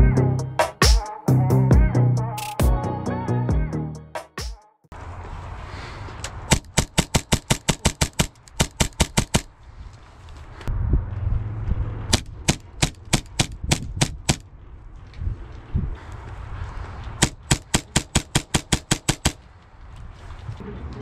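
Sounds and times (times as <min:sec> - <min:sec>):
airsoft pistol shots: 0:12.1 - 0:14.4.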